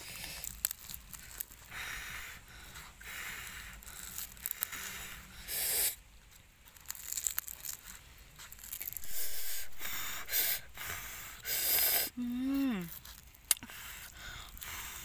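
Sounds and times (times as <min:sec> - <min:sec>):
grilled fish skin crackling: 0:00.0 - 0:11.9, 0:12.7 - 0:15.0
hissing bursts: 0:08.9 - 0:12.2.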